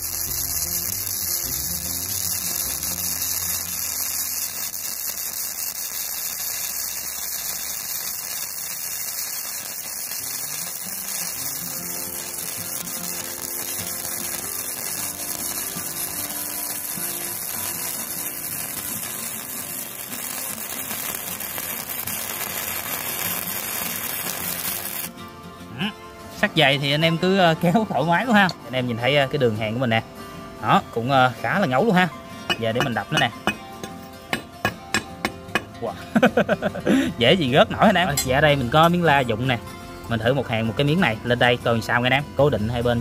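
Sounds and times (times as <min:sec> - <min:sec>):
welding arc crackling: 0:00.0 - 0:25.1.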